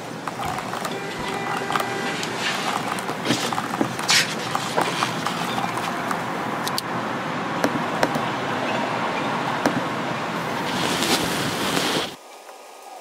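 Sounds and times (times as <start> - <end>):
keyboard and mouse clicks: 0.0 - 6.9
steady rushing noise: 0.0 - 12.2.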